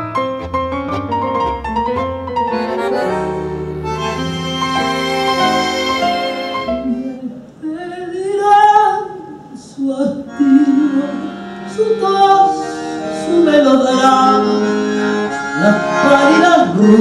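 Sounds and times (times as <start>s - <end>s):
instrumental accompaniment: 0.0s - 7.5s, 10.3s - 17.0s
woman singing: 6.7s - 14.7s, 15.6s - 17.0s.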